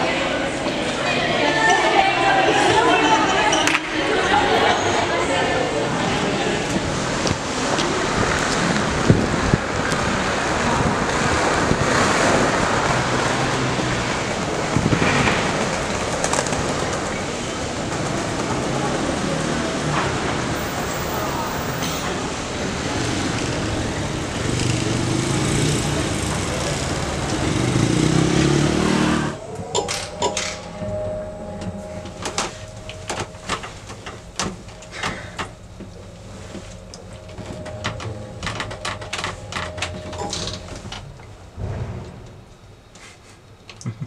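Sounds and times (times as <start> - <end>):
city street traffic: 0.0 - 44.0
steady tone: 29.2 - 42.6.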